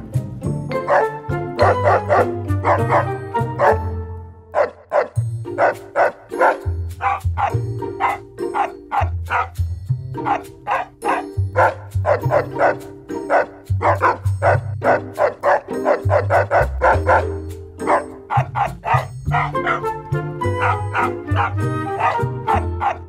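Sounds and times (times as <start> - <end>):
soundtrack music: 5.2 - 23.0.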